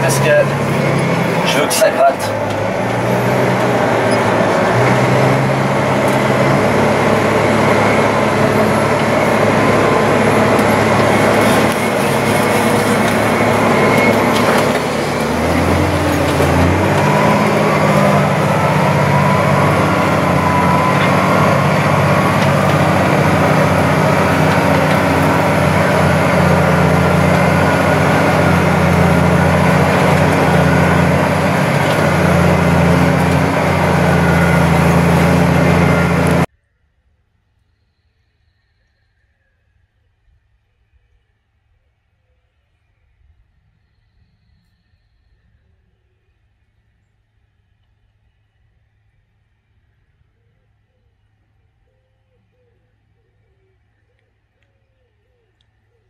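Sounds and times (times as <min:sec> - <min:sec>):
tractor engine from inside cab: 0:00.0 - 0:36.5.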